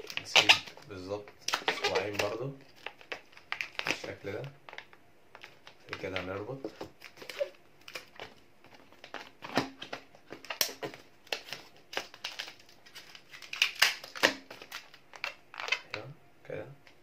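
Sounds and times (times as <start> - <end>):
balloon rubber rubbing and stretching: 0.0 - 0.9, 1.5 - 2.4.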